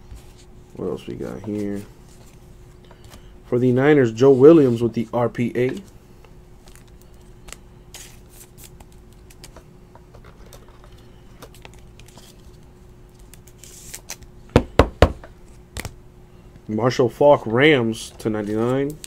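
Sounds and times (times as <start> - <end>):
cards rustling and clicking: 6.6 - 14.3, 18.2 - 19.0.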